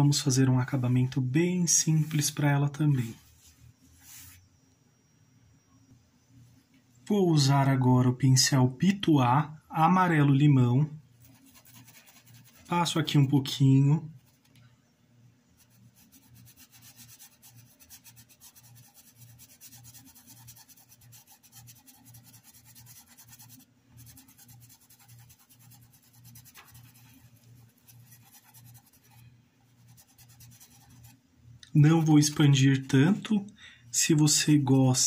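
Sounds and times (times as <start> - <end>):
paintbrush scrubbing fabric: 3.0 - 4.4, 11.2 - 13.0, 14.2 - 14.5, 15.6 - 31.2.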